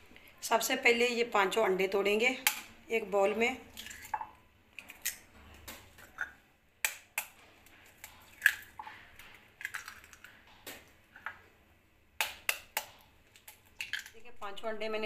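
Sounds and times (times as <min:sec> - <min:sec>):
eggshells cracking on a bowl: 0:03.7 - 0:11.4, 0:12.2 - 0:14.2.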